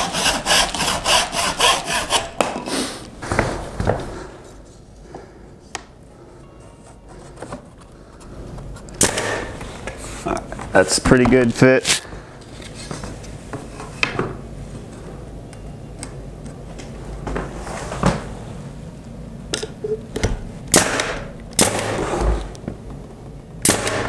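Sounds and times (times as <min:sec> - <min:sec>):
nail gun firing: 0:09.0 - 0:09.6, 0:20.7 - 0:22.2, 0:23.6 - 0:24.0.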